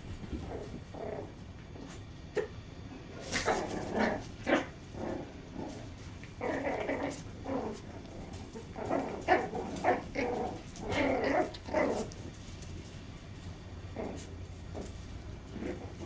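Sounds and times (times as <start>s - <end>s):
puppies growling and yipping: 3.2s - 12.4s, 13.9s - 16.0s.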